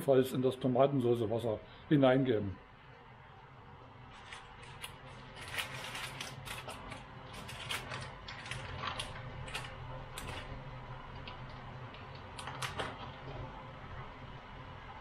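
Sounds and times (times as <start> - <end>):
steady low hum: 0.0 - 15.0
foil wrapper crinkling: 4.1 - 10.5.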